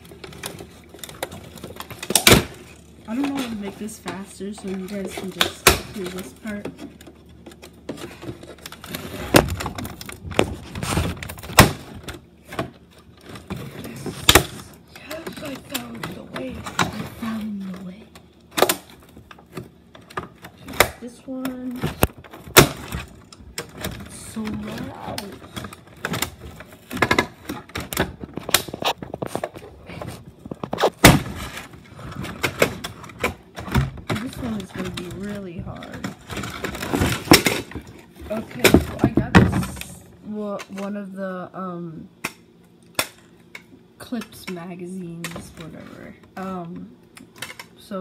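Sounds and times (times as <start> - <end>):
packaging rustling and crackling: 0.0 - 20.7, 21.3 - 40.0
plastic packaging tearing open: 22.0 - 33.4.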